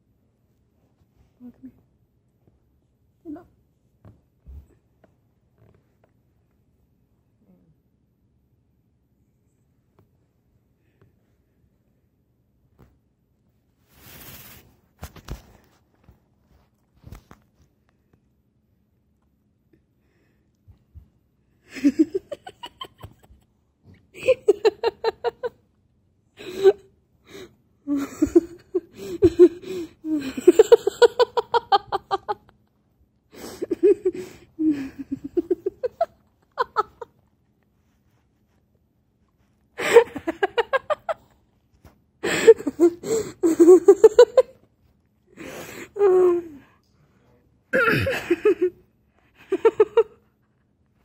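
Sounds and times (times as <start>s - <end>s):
person laughing hard: 24.2s - 25.6s, 27.9s - 32.5s, 33.4s - 37.1s, 39.8s - 41.2s, 42.2s - 44.6s, 47.8s - 48.8s, 49.4s - 50.2s.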